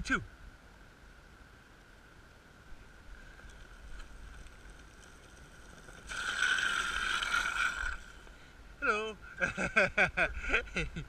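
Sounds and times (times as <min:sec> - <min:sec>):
skateboard rolling: 0:02.7 - 0:08.5
skateboard wheels screeching on asphalt: 0:02.8 - 0:08.6.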